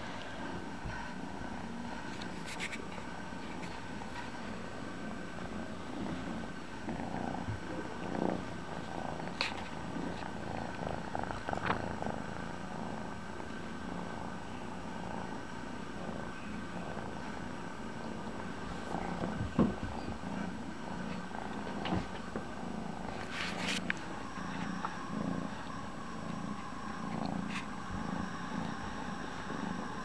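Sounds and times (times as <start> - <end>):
kitten purring: 0.0 - 30.0
knocks and rustles: 19.2 - 20.2.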